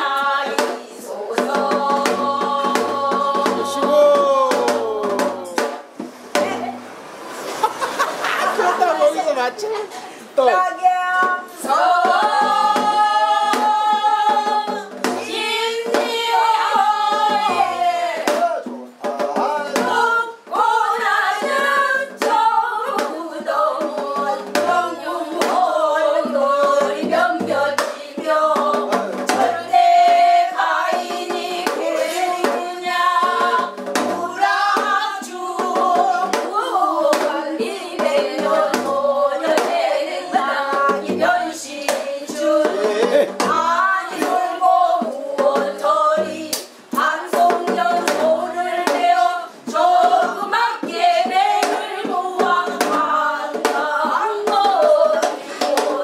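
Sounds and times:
women singing folk song: 0:00.0 - 0:05.8, 0:09.9 - 0:56.0
hand claps: 0:46.5 - 0:46.8.

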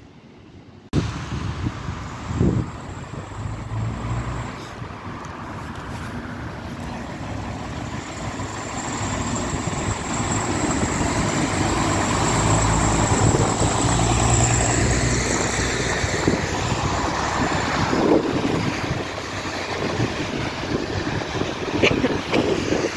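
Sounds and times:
rail and wheel rumble: 0:00.0 - 0:22.9
diesel engine droning: 0:01.0 - 0:22.9.

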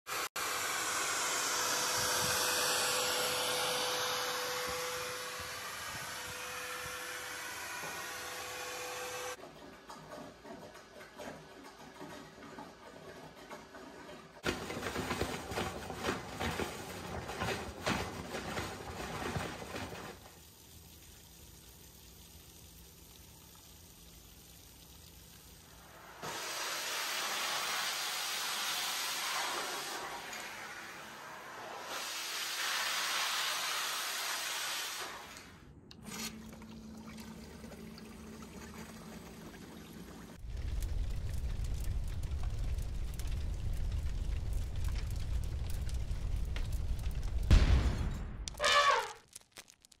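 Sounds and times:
wet vacuum running: 0:00.1 - 0:09.4, 0:14.4 - 0:20.4, 0:25.8 - 0:40.6
faint low rumble: 0:40.4 - 0:48.5.

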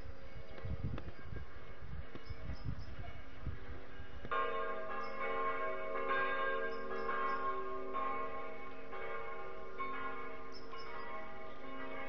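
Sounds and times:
bells ringing: 0:04.3 - 0:12.0.

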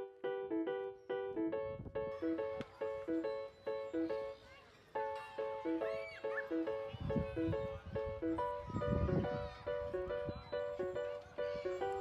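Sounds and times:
light melodic background music: 0:00.0 - 0:12.0.

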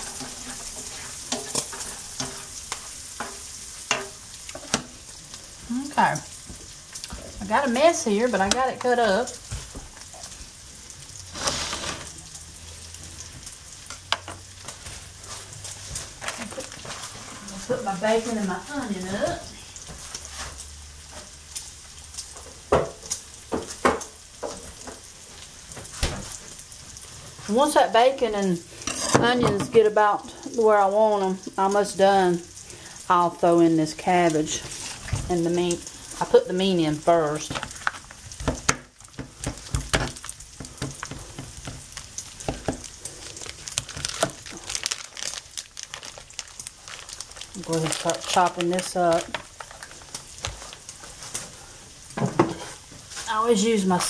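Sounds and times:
bacon and onion sizzling in pan: 0:00.0 - 0:54.0
knife cutting plastic package: 0:42.4 - 0:50.8.

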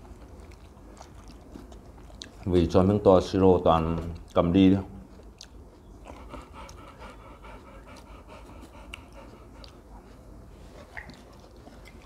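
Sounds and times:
dog panting: 0:05.8 - 0:12.0.

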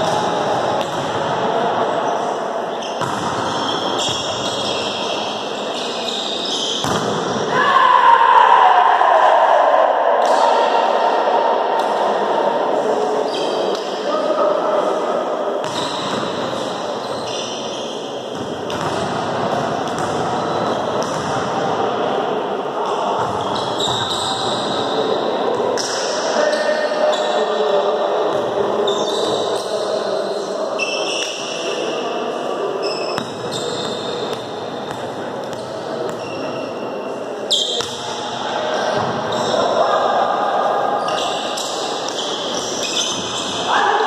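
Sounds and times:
players' voices: 0:00.0 - 0:44.0
shoes squeaking on court: 0:02.7 - 0:07.0, 0:17.0 - 0:18.2, 0:23.2 - 0:24.7, 0:28.9 - 0:29.6, 0:32.8 - 0:36.9, 0:41.0 - 0:43.6
volleyball struck with slaps: 0:06.8 - 0:07.3.

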